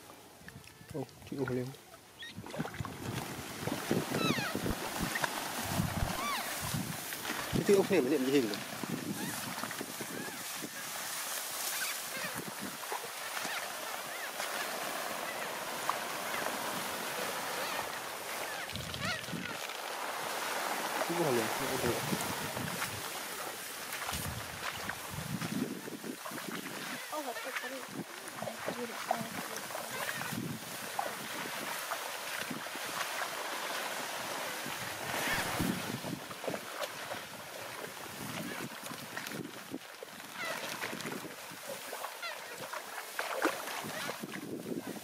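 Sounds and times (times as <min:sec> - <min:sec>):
plastic tarp dragged over straw: 0:03.0 - 0:12.9, 0:19.9 - 0:26.0, 0:33.4 - 0:36.2.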